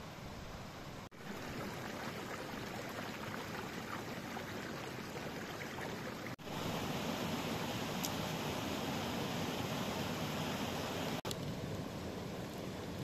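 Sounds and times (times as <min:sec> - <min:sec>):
steady rushing outdoor noise: 0:06.3 - 0:13.0.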